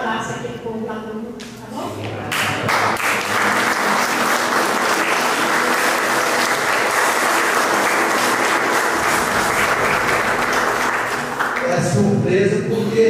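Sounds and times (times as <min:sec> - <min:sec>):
congregation applauding: 0:02.3 - 0:12.2.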